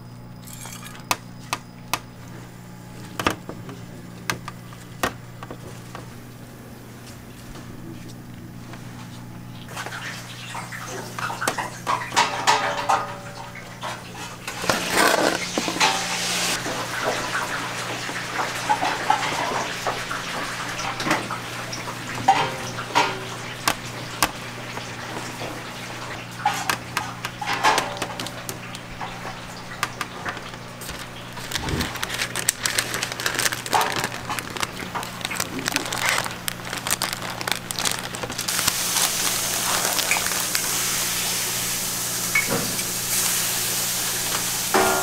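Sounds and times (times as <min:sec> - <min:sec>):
low electrical hum: 0:00.0 - 0:45.0
metal spatula and trays clinking: 0:14.5 - 0:16.3.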